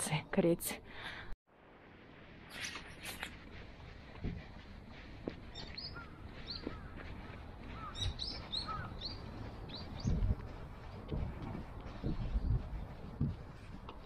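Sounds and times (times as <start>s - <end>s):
small birds chirping: 5.2s - 10.9s, 11.6s - 14.0s.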